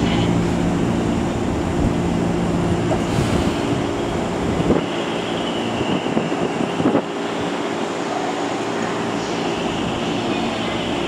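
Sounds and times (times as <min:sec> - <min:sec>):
train equipment pitched hum: 0:00.0 - 0:11.0.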